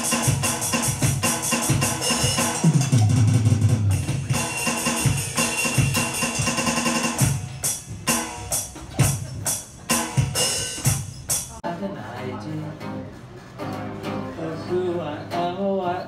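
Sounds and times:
drum kit playing fast: 0:00.0 - 0:11.6
other instruments playing: 0:00.0 - 0:11.6.

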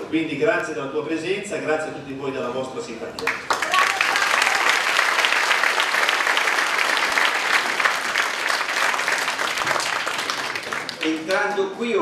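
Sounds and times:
crowd applauding: 0:03.2 - 0:11.7.

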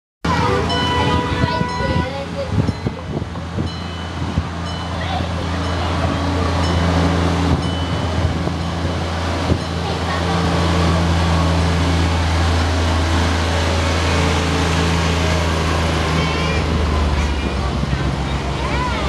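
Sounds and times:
small locomotive humming: 0:00.2 - 0:19.0
riders' voices: 0:00.3 - 0:03.7.

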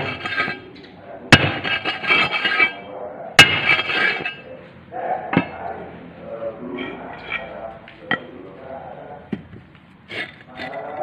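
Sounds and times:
metallic clang on steel plate: 0:01.3 - 0:02.8, 0:03.4 - 0:04.5.

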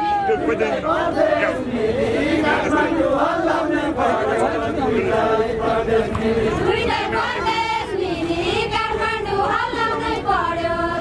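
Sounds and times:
crowd chatter: 0:00.0 - 0:11.0
men singing together: 0:00.2 - 0:11.0.

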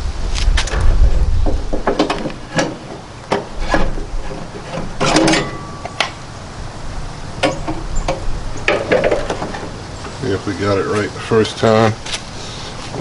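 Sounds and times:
metal rod clinking: 0:05.0 - 0:06.2.

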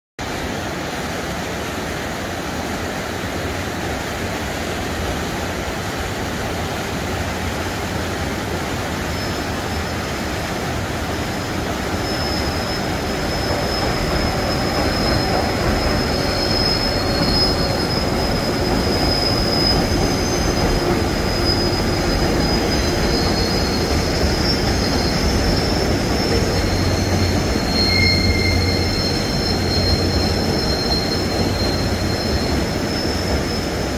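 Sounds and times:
flooded river rushing: 0:00.2 - 0:33.9
train crossing steel bridge: 0:00.2 - 0:33.9
train brakes squealing: 0:08.4 - 0:33.9.

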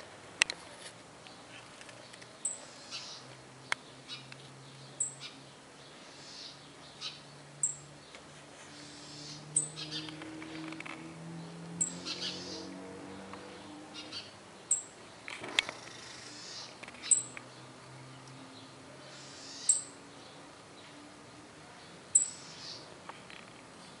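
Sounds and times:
small bird chirping: 0:01.3 - 0:12.8, 0:13.9 - 0:21.0, 0:22.1 - 0:22.9
bird twittering: 0:02.4 - 0:03.3, 0:06.0 - 0:07.8, 0:08.8 - 0:10.8, 0:11.8 - 0:12.7, 0:13.9 - 0:15.0, 0:15.7 - 0:17.4, 0:19.1 - 0:20.0, 0:22.1 - 0:22.9.

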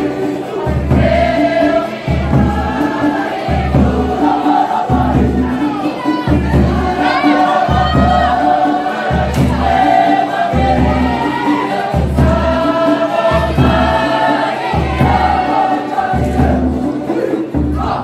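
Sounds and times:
students choir singing: 0:00.0 - 0:18.0.

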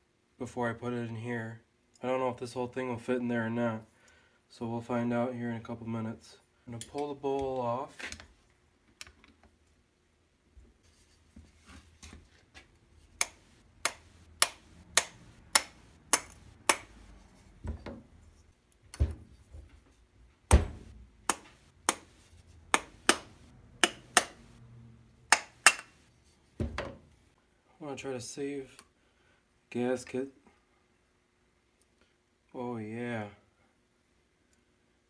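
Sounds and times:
screwdriver metal clicks: 0:13.2 - 0:16.9.

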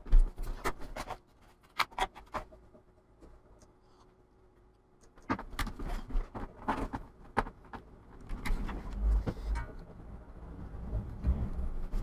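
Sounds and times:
low bumps and rubbing: 0:10.5 - 0:12.0.

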